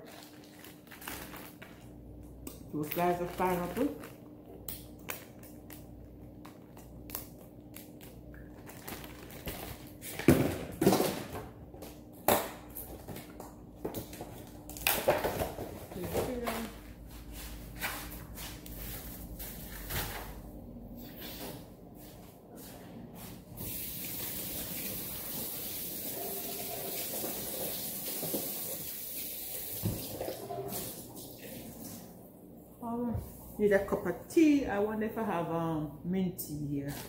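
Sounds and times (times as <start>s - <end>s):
person's voice: 2.8s - 4.0s, 32.8s - 37.0s.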